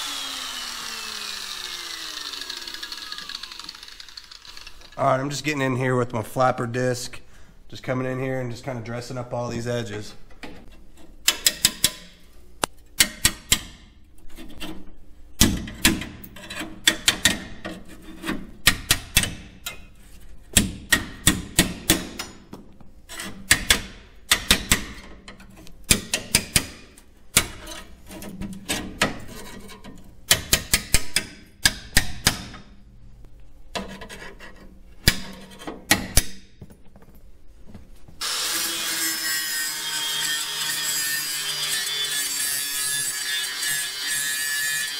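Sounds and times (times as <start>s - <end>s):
grinder grinding: 0.0s - 5.0s, 38.2s - 44.9s.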